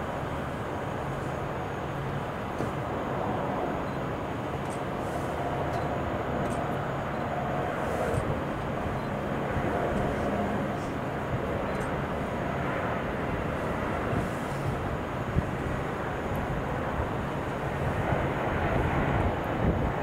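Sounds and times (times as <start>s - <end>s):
distant jet engines rumbling: 0.0s - 20.0s.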